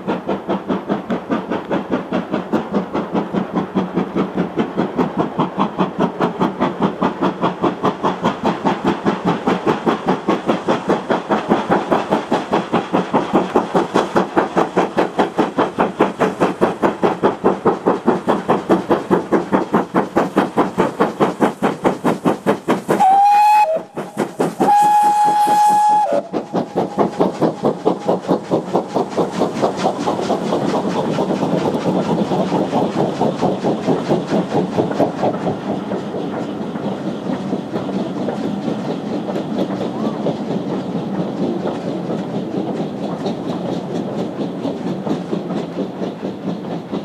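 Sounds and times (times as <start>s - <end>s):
locomotive exhaust beats: 0.0s - 47.0s
wheels clattering on track: 0.0s - 47.0s
steam whistle blast: 23.0s - 24.0s, 24.6s - 26.3s.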